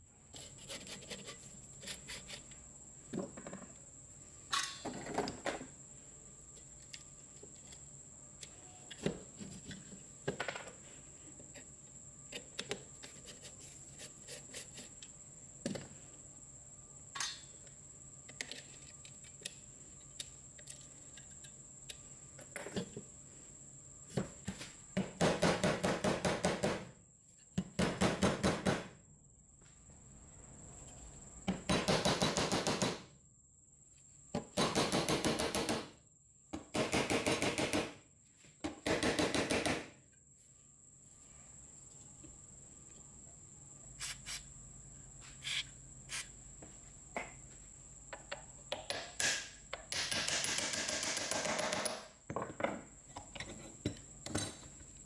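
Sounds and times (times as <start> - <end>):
tool clicking and knocking on metal: 48.1 - 54.6.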